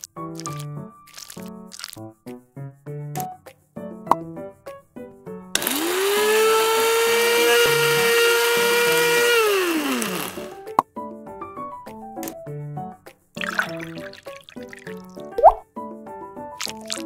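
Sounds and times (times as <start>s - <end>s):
plucked background music: 0.0s - 17.0s
small electric motor whirring: 5.6s - 10.6s.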